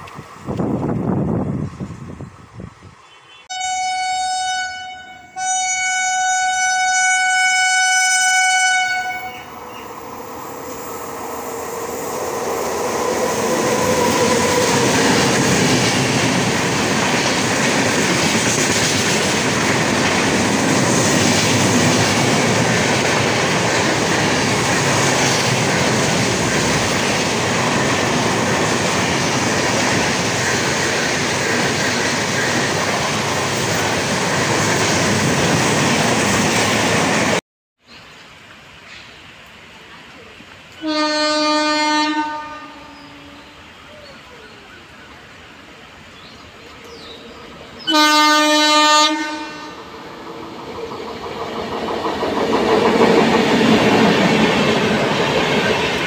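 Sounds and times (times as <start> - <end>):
passenger train passing: 0.0 - 37.4, 38.4 - 56.0
train horn blasts: 3.0 - 9.6, 40.8 - 43.7, 47.8 - 49.9.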